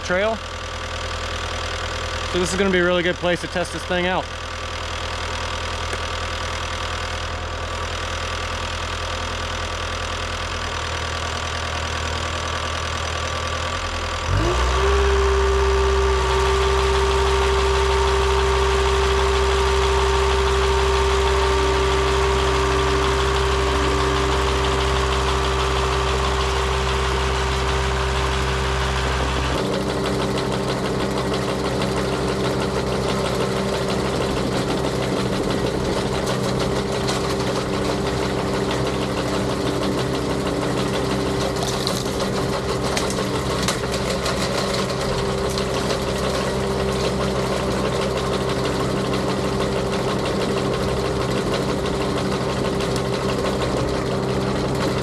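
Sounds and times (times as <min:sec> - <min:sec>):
diesel engine idling: 0:00.0 - 0:55.0
engine revving with whine: 0:14.2 - 0:43.6.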